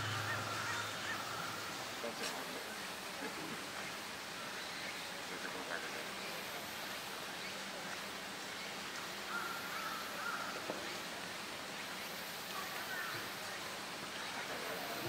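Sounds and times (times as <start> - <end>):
outdoor background hiss: 0.0 - 15.0.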